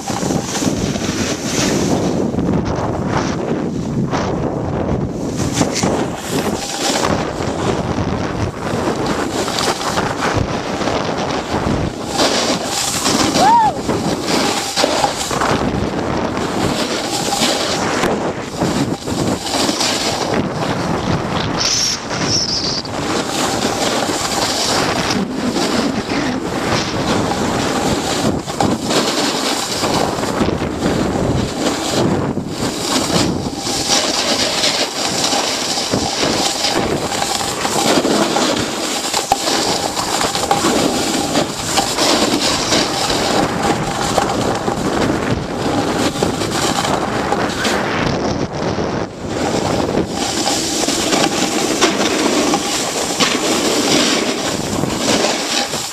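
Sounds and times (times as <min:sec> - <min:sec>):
wind rushing over microphone: 0:00.0 - 0:55.9.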